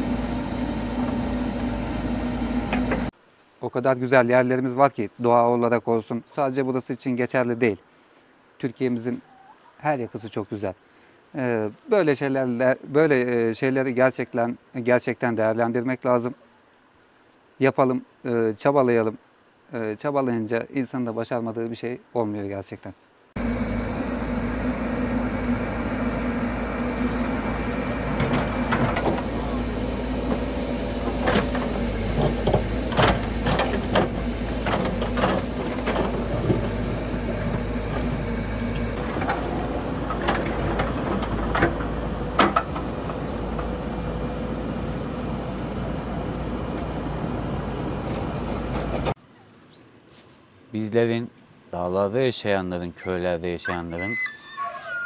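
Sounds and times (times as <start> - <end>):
diesel engine running: 0.0 - 3.1, 23.4 - 49.2.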